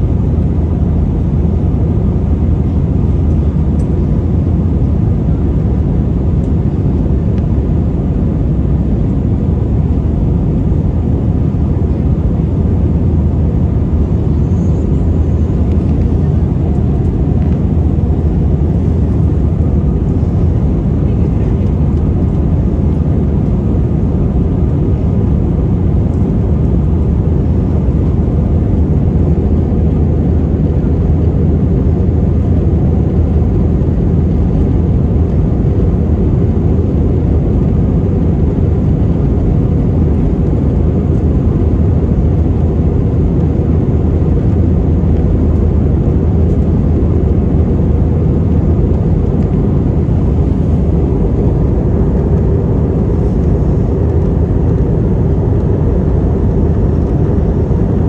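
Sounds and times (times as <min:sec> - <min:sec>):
faint steady hum: 0:00.0 - 0:58.0
jet engine cabin rumble: 0:00.0 - 0:58.0.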